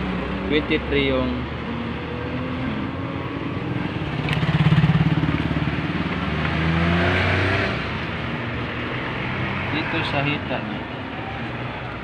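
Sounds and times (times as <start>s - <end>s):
vehicle engine running: 2.8s - 6.5s.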